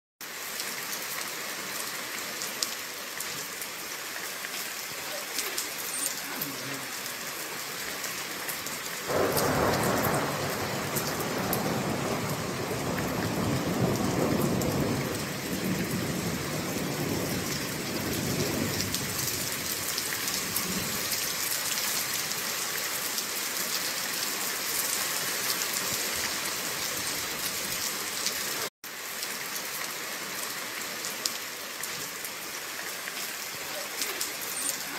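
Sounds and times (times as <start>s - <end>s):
heavy rain on wet street: 0.2s - 34.9s
thunder rumbling: 9.1s - 21.1s.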